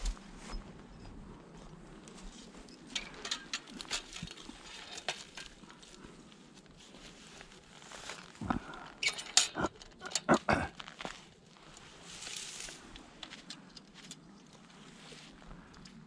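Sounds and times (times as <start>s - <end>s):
rustling in dry grass: 0.0s - 9.0s, 10.8s - 16.0s.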